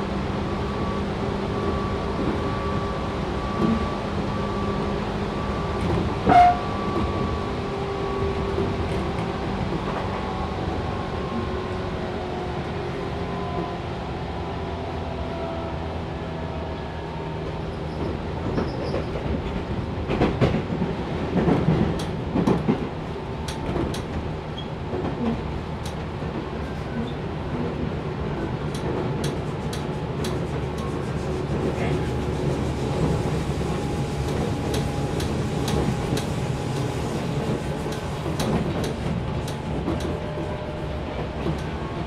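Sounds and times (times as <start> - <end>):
electric train running: 28.7 - 42.0.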